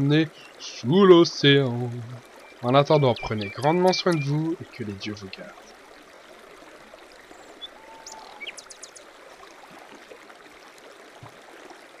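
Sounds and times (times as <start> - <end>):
flowing stream: 0.0 - 12.0
high bird chirps: 2.4 - 4.4, 7.6 - 9.0.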